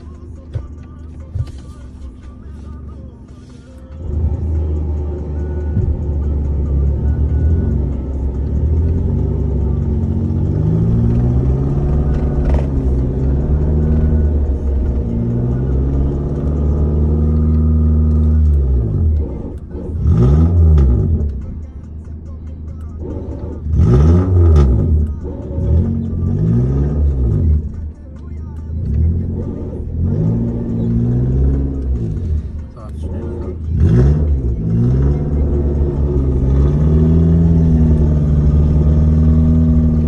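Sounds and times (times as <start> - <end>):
car engine revving: 0.0 - 28.0, 28.6 - 40.0.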